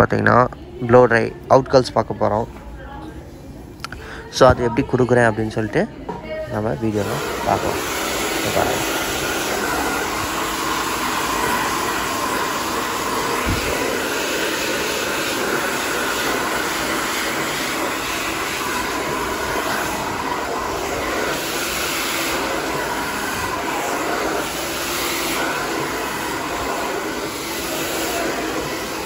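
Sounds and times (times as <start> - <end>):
hair dryer blowing air: 6.6 - 29.0.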